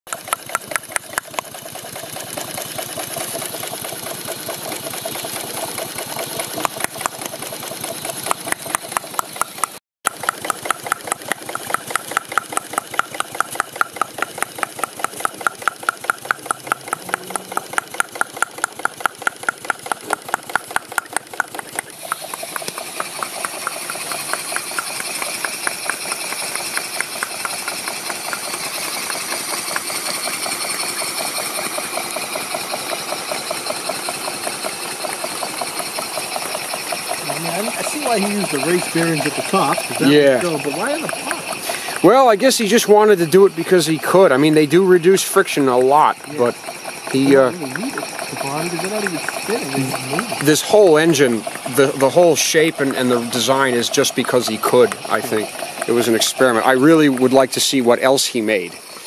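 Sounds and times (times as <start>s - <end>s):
model steam engine clattering: 0.1s - 59.0s
steam hissing: 21.8s - 59.0s.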